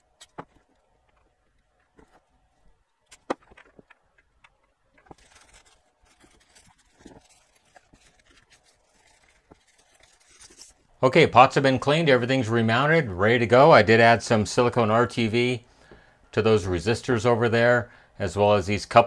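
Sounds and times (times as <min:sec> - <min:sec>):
tissue rubbing on circuit board: 0:04.4 - 0:10.9.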